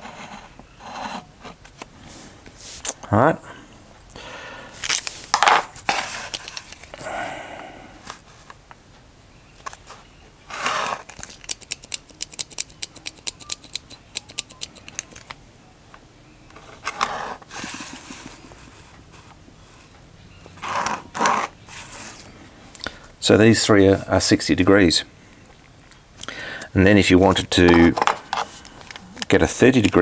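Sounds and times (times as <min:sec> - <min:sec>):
pencil scratching along ruler: 0:00.0 - 0:01.6, 0:16.9 - 0:19.8, 0:20.6 - 0:22.2
small sharp clicks: 0:11.1 - 0:15.4.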